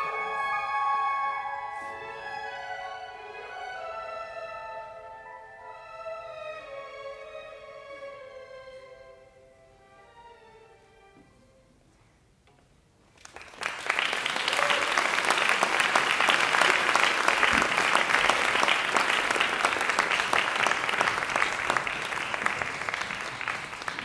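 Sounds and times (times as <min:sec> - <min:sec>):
audience applause: 0:13.2 - 0:24.0.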